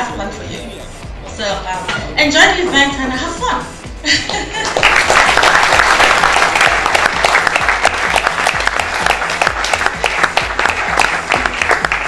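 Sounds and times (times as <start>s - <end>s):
background music with bass beat: 0.0s - 4.6s, 5.6s - 12.0s
audience applauding: 4.6s - 12.0s.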